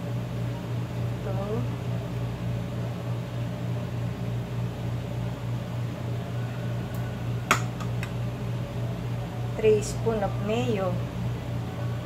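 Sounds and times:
low machine hum: 0:00.0 - 0:12.0
metal spoon knocking bowl: 0:07.5 - 0:08.1.

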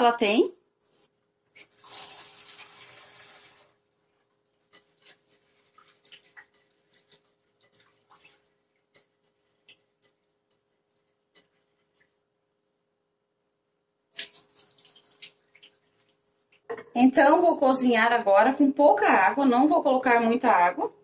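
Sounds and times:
water splashing and dripping: 0:01.6 - 0:03.7, 0:04.8 - 0:12.2, 0:14.1 - 0:16.7.

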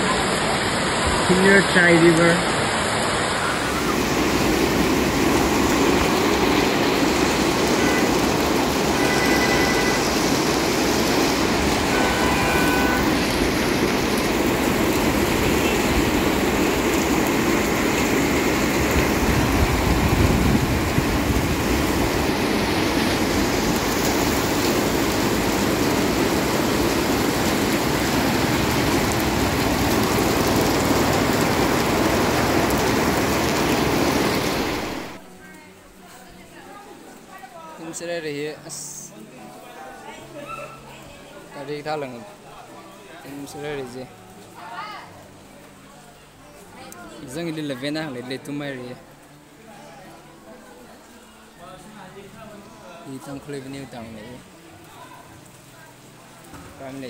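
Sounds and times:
vehicles driving through floodwater: 0:00.0 - 0:35.3
heavy rain pouring: 0:00.0 - 0:57.0.

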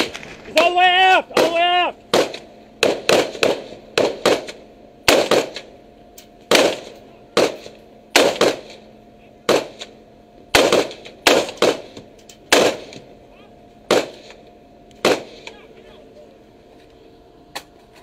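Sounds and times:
faint steady hum: 0:00.0 - 0:18.0
rifle shots: 0:01.3 - 0:05.7, 0:06.5 - 0:13.1, 0:13.9 - 0:14.4, 0:15.0 - 0:15.6.

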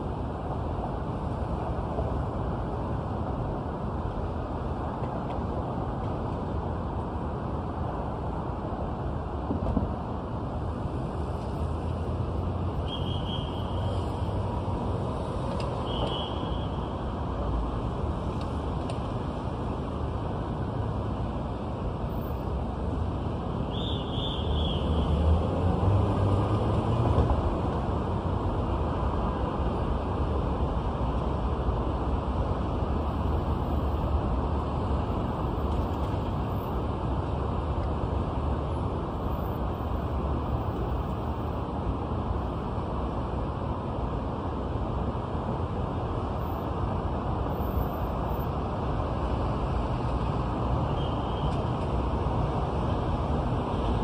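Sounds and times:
passing cars rumble: 0:16.9 - 0:39.1.

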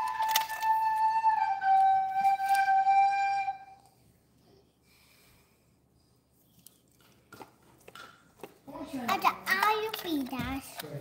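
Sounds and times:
high whistle-like tone: 0:00.0 - 0:04.0.

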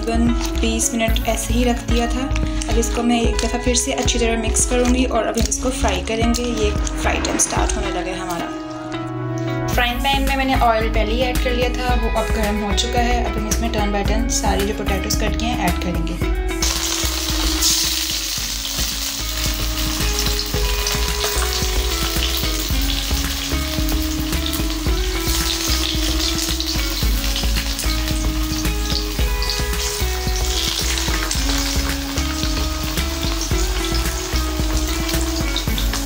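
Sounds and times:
potato slices sizzling in oil: 0:00.0 - 0:07.8, 0:16.6 - 0:36.0
background music: 0:00.0 - 0:36.0.

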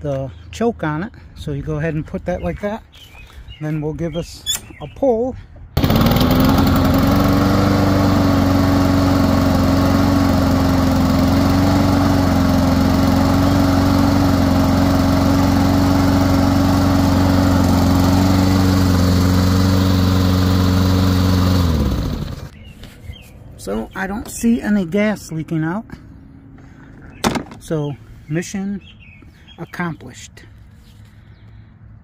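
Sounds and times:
engine winding down: 0:05.8 - 0:22.6
lawn mower engine running: 0:05.8 - 0:22.6.

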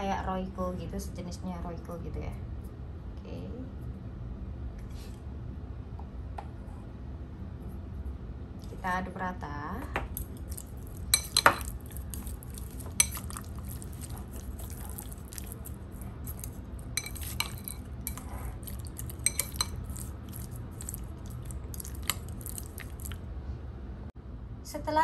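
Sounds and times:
chopsticks clinking on ceramic bowl: 0:10.4 - 0:23.2.

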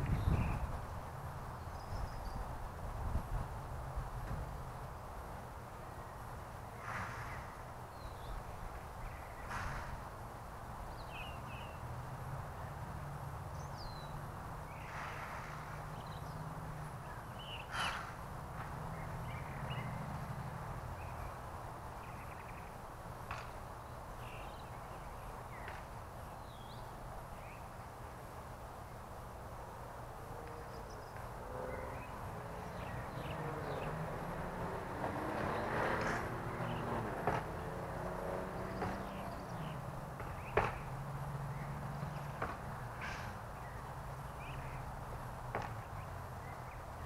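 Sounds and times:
vehicle passing: 0:06.7 - 0:07.8, 0:11.8 - 0:21.8, 0:29.7 - 0:47.0
harsh caw-like bird calls: 0:17.6 - 0:18.2.

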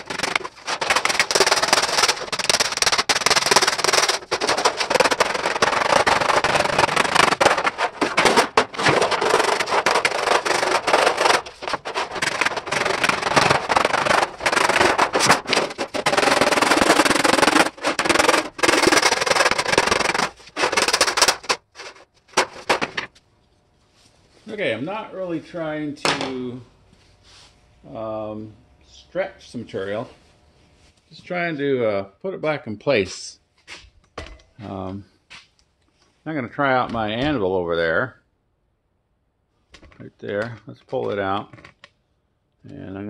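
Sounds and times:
wooden mallet beating sheet metal: 0:00.0 - 0:21.7.

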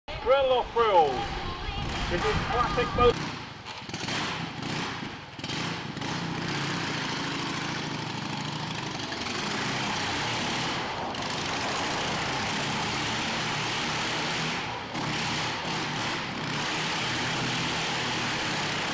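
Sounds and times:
motorcycle engine revving: 0:00.2 - 0:18.9.

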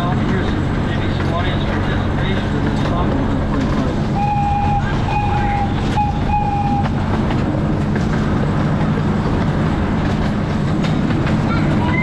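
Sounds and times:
train running: 0:00.0 - 0:12.0
wheels clicking on rail joints: 0:00.0 - 0:12.0
miniature train horn blasts: 0:04.2 - 0:07.0.

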